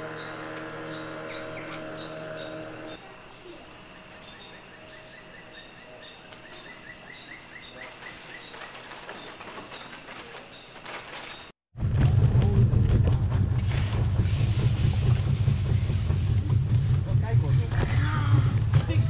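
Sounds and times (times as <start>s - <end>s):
insect drone: 0.0s - 11.5s.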